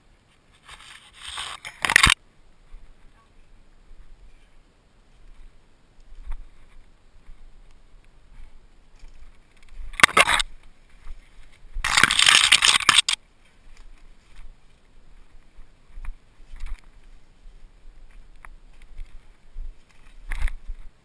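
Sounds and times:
leaves scraping camera: 0:00.3 - 0:02.2, 0:08.9 - 0:14.6
bike ticks and rattles: 0:00.6 - 0:02.2, 0:05.3 - 0:17.4, 0:18.0 - 0:21.0.

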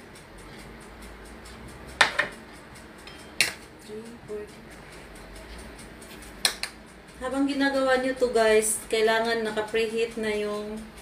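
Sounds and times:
spoon clinking against dishes: 0:03.0 - 0:03.7.

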